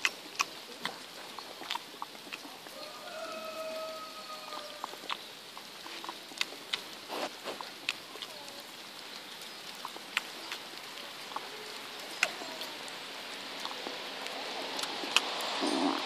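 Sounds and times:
sheep chewing and nibbling: 0.0s - 16.0s.

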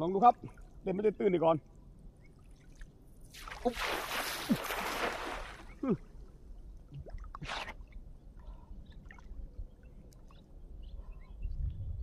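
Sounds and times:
person wading in water: 2.3s - 6.2s
water splash: 2.5s - 6.0s.

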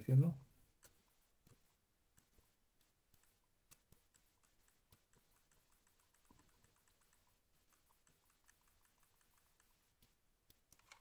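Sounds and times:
controller buttons clicking: 10.6s - 11.0s.

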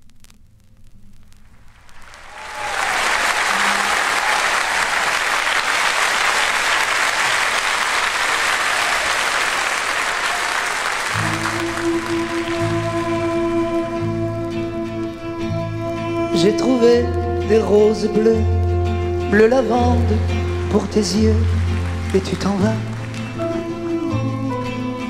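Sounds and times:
audience applause: 1.9s - 14.0s, 19.8s - 24.0s
instrumental music with low notes: 11.2s - 25.0s.

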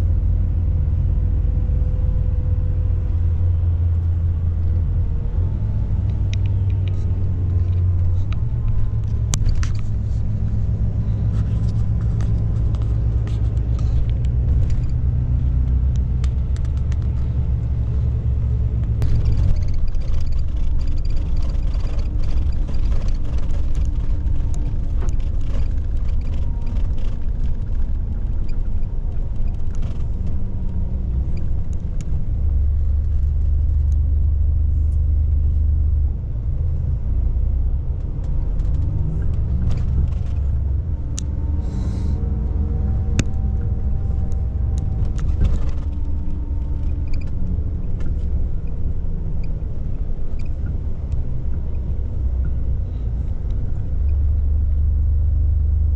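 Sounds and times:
bus engine and road rumble: 0.0s - 55.9s
light clicks and rattles: 6.0s - 34.0s, 38.1s - 41.5s, 43.0s - 54.9s.

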